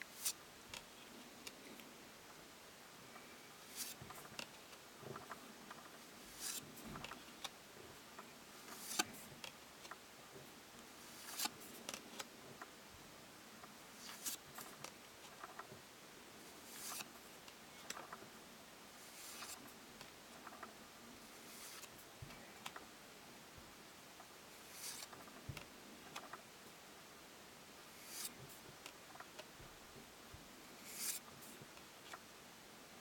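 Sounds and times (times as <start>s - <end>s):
cards sliding with faint swish: 0.0s - 1.9s, 3.2s - 7.5s, 8.6s - 9.6s, 11.0s - 12.3s, 14.0s - 15.6s, 16.5s - 18.1s, 19.0s - 19.7s, 21.3s - 22.8s, 24.5s - 25.2s, 27.9s - 28.4s, 30.8s - 31.5s.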